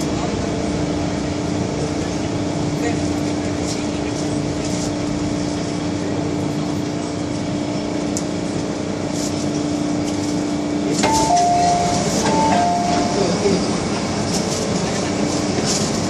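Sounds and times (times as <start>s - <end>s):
train interior hum: 0.0s - 16.0s
two-tone door chime: 11.0s - 13.6s.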